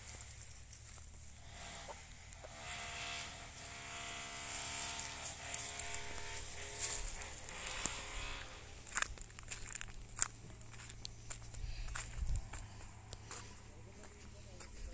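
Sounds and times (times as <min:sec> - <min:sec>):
small motor buzzing hum: 0:00.0 - 0:13.6.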